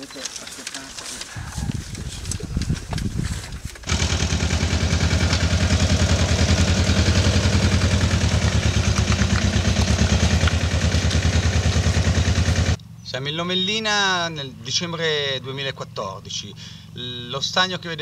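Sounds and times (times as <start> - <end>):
small engine running: 3.8 - 12.8.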